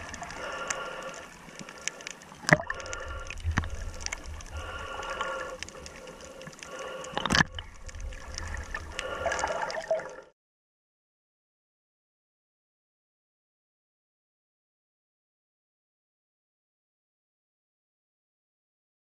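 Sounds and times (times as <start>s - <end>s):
muffled underwater sloshing: 0.0s - 10.3s
low rumble of water: 0.0s - 10.4s.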